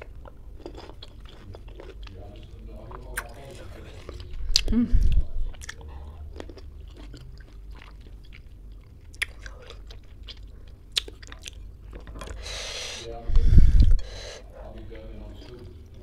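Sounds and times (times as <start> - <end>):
person chewing wetly: 0.0 - 16.0.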